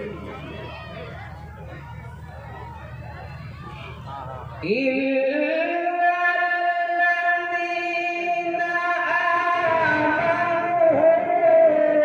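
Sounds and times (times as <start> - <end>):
man reciting melodically: 4.0 - 12.0.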